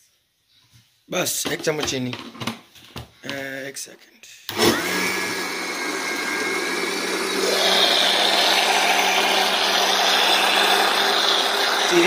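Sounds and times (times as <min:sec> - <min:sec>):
blender motor running: 0:04.5 - 0:12.0.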